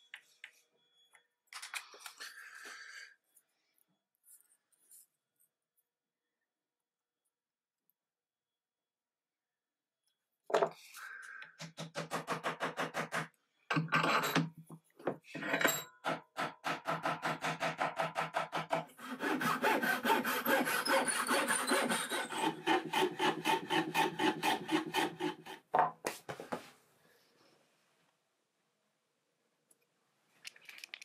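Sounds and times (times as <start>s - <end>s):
hand saw cutting wood: 11.7s - 13.4s, 16.0s - 25.7s.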